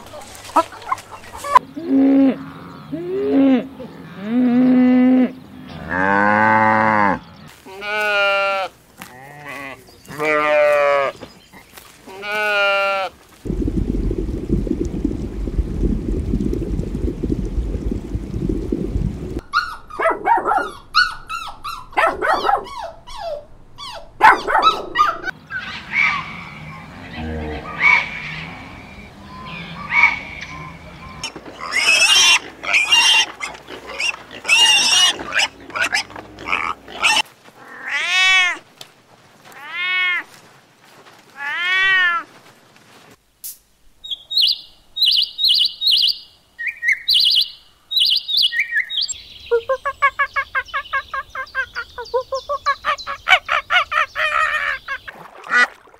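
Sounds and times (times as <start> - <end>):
animal calls and cries: 0.0 - 13.1, 19.4 - 38.6, 39.4 - 40.4, 41.3 - 42.4, 44.0 - 55.8
low rumbling noise: 13.4 - 19.5.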